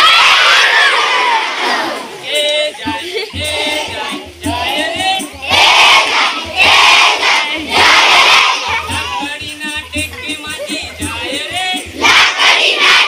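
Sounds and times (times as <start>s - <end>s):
children singing together: 0.0s - 13.0s
person leading singing: 1.8s - 13.0s.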